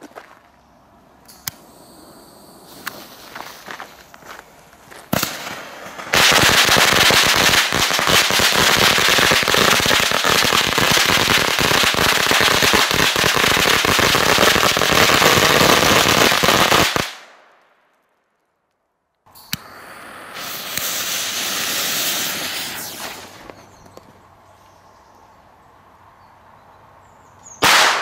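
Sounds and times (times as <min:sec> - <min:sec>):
fuse burning: 0:19.3 - 0:24.0.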